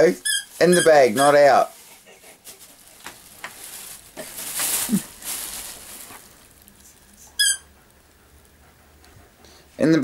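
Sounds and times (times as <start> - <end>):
plastic bag rustling: 0.0 - 7.6.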